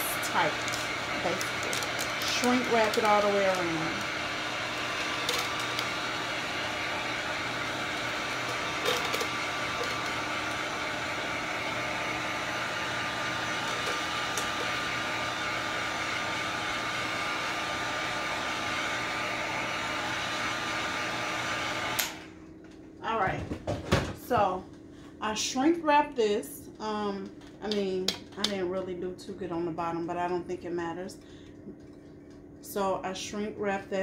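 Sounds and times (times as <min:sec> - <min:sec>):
heat gun blowing hot air: 0:00.0 - 0:22.3.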